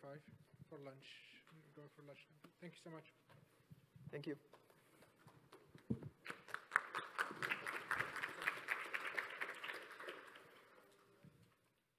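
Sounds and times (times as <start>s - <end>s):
audience applauding: 6.2s - 11.2s.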